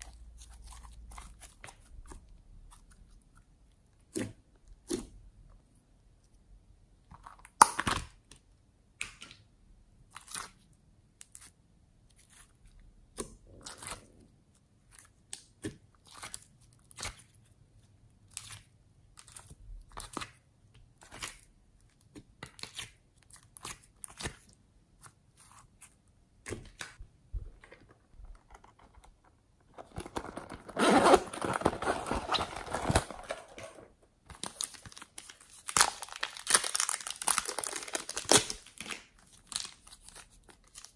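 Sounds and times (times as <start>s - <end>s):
slime crinkling and crackling: 18.3s - 40.9s.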